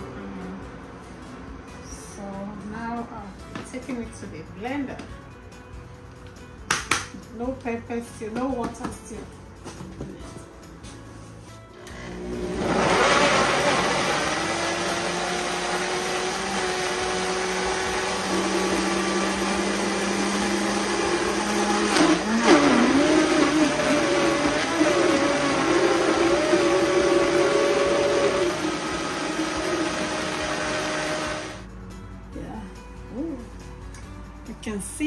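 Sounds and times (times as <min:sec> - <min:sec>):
blender motor running: 0:11.8 - 0:31.6.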